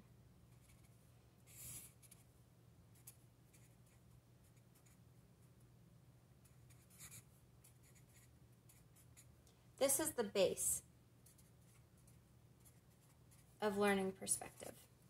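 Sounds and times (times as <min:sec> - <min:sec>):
low steady hum: 0:00.0 - 0:15.0
marker strokes on paper: 0:00.6 - 0:02.2.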